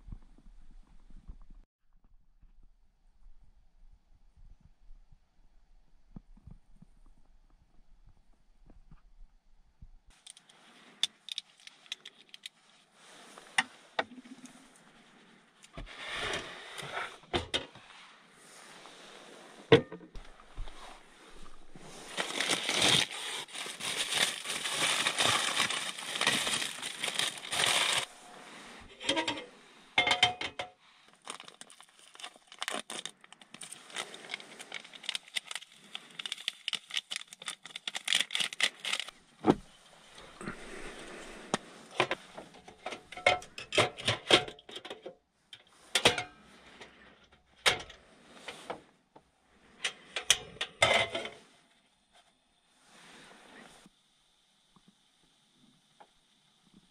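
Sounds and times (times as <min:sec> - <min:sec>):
paper bag crinkling: 0:20.6 - 0:28.2, 0:31.1 - 0:39.1.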